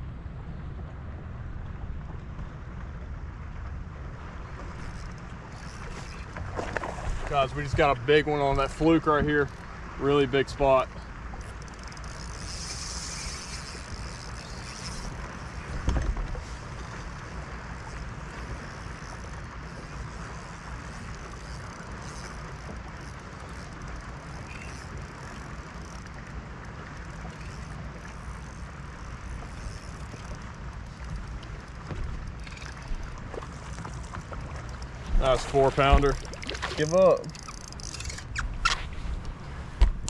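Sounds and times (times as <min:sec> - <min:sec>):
water lapping around boat: 0:00.0 - 0:40.0
knock on boat: 0:15.8 - 0:16.3.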